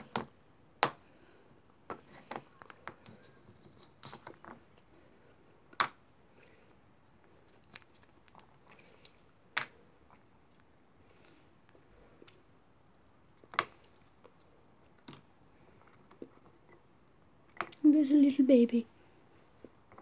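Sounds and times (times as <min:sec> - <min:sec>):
light clicks and scrapes: 0:01.9 - 0:04.6, 0:15.6 - 0:16.8.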